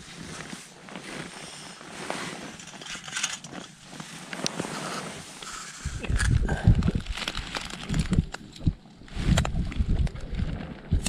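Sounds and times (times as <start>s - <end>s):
wind buffeting on microphone: 5.8s - 11.0s.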